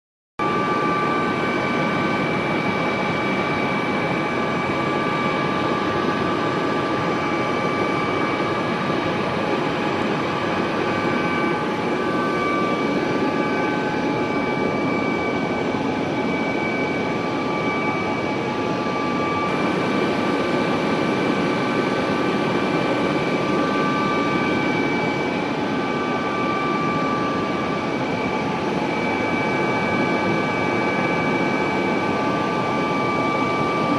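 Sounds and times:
helicopter engine and rotor noise: 0.4 - 33.9
high whining tones: 7.3 - 33.6.

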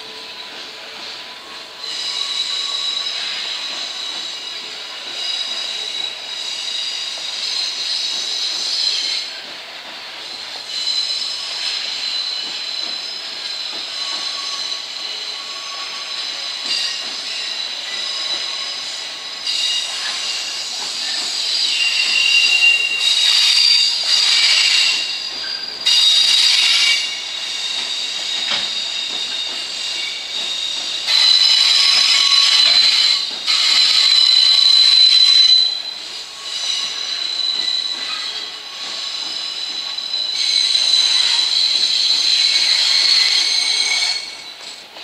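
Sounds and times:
high-pitched wheel squeal: 10.7 - 44.8.

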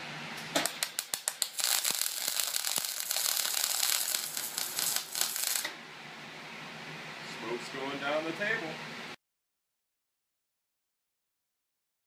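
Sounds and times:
welding arc crackling: 0.5 - 5.8.

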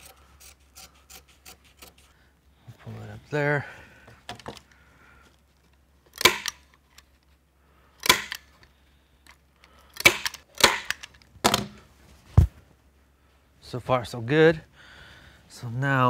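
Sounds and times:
staple gun firing: 6.2 - 6.7, 8.0 - 8.5, 10.0 - 11.7.

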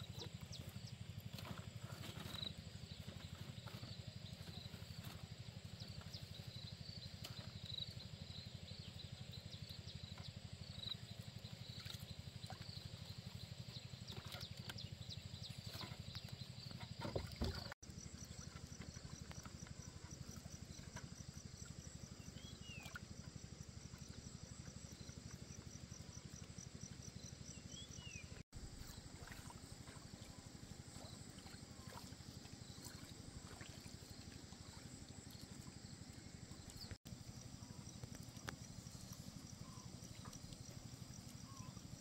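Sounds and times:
water trickling around oars: 0.0 - 42.0
insects chirping: 16.5 - 42.0.

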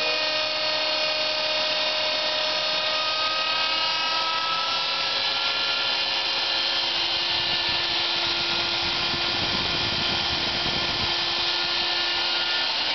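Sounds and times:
router spindle whine: 0.0 - 12.9
low rumble of cutting: 6.4 - 12.5.

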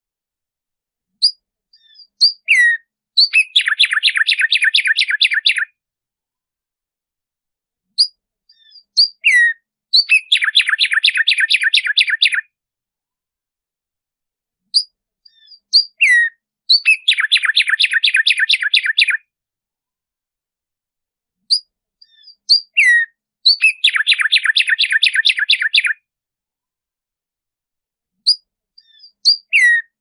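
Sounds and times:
sparrow singing: 1.1 - 5.8, 7.9 - 12.5, 14.7 - 19.3, 21.4 - 26.0, 28.2 - 30.0.

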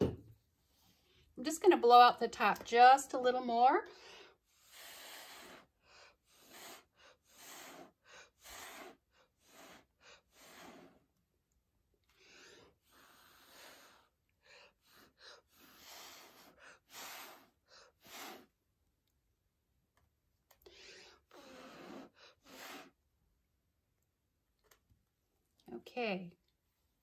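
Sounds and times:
short puffs of blown air: 4.0 - 11.0, 14.8 - 18.6, 20.7 - 23.0.

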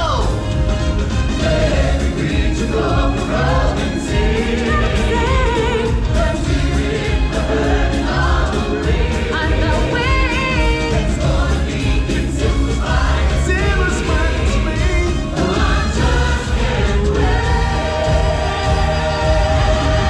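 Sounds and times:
choir singing: 1.3 - 20.0.

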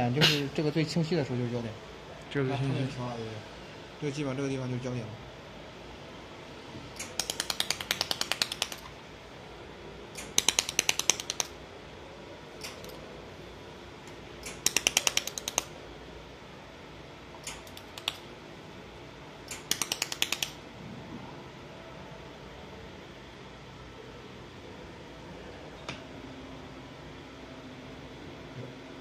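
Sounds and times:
laser welder snapping clicks: 7.0 - 8.8, 10.2 - 11.5, 12.6 - 13.0, 14.4 - 15.7, 17.4 - 18.2, 19.5 - 20.6.

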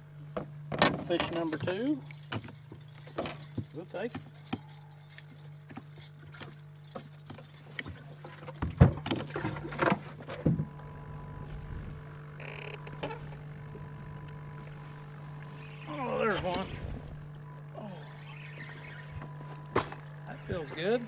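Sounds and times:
low steady hum: 0.0 - 21.0
gear clattering in metal boat: 0.4 - 11.0, 17.2 - 21.0.

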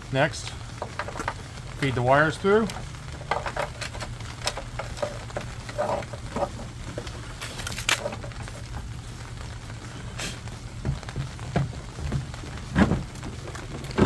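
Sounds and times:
steady low hum: 0.0 - 14.0
plastic clicks and rustles: 0.8 - 2.0, 2.6 - 8.9, 10.8 - 14.0
plastic parts clattering: 2.6 - 8.7.

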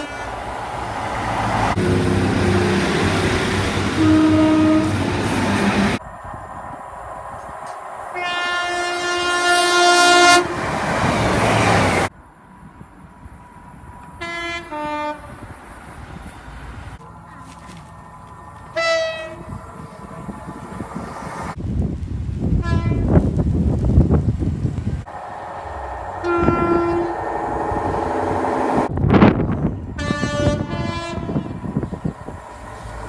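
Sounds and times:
passing train rush: 0.0 - 33.0
train horn blasts: 2.4 - 6.0, 8.1 - 10.6, 14.2 - 15.4, 18.7 - 19.6, 22.6 - 23.1, 25.1 - 28.9, 30.0 - 31.7
two-tone train horn: 3.8 - 6.0, 8.1 - 10.6, 14.2 - 15.4, 18.7 - 19.6, 22.6 - 23.1, 25.1 - 28.9, 30.0 - 31.9.

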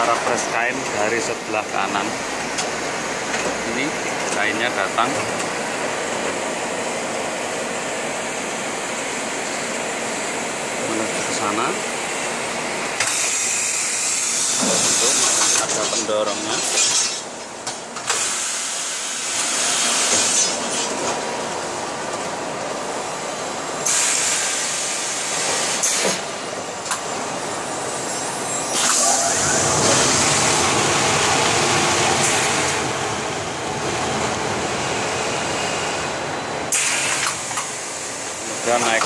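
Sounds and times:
press machine running: 18.0 - 39.0
hiss: 18.1 - 20.5, 23.8 - 26.2, 36.7 - 38.1.

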